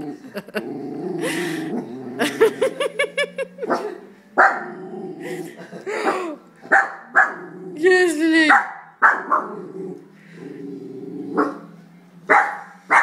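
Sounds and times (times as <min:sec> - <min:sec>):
dog growling: 0:00.0 - 0:02.8, 0:03.5 - 0:06.4, 0:07.2 - 0:07.9, 0:09.2 - 0:11.8
dog barking: 0:03.7 - 0:04.6, 0:06.7 - 0:07.4, 0:08.5 - 0:09.5, 0:11.4 - 0:11.6, 0:12.3 - 0:13.0.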